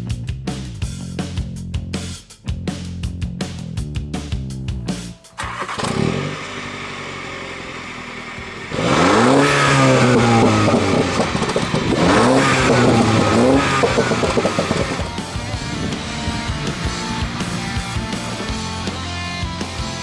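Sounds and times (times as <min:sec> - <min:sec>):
car engine idling and revving: 0:05.4 - 0:20.0.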